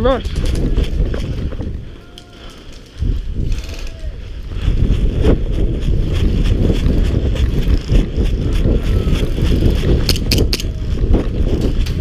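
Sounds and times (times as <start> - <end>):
wind rumble on microphone: 0.0 - 12.0
sharp snaps: 10.0 - 10.7.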